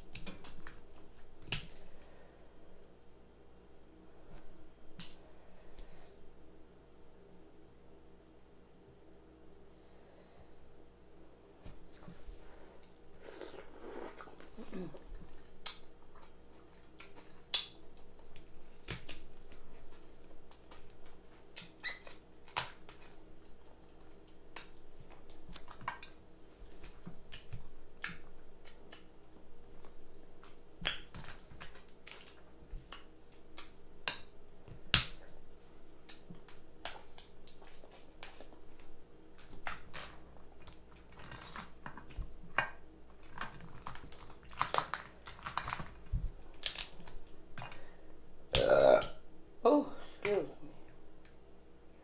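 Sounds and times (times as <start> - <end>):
wet chewing and lip-smacking: 13.1 - 25.9, 36.0 - 42.2
crab shell cracking: 16.9 - 23.2, 43.2 - 47.9.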